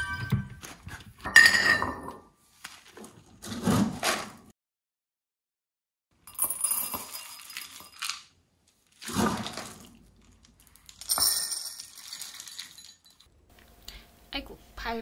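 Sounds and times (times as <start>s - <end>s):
kibble clinking into bowls: 6.3s - 8.3s, 9.6s - 13.3s.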